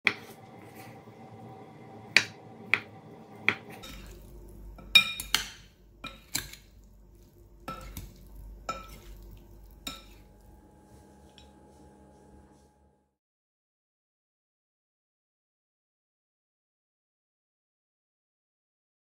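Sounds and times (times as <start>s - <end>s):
utensils clinking against glass bowl: 3.5s - 6.8s, 7.7s - 9.2s, 9.8s - 10.3s.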